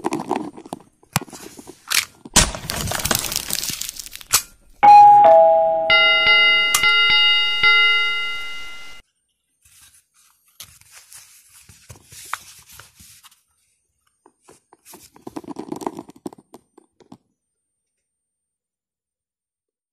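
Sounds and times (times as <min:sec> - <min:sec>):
ringing bell chime: 0:04.8 - 0:09.0.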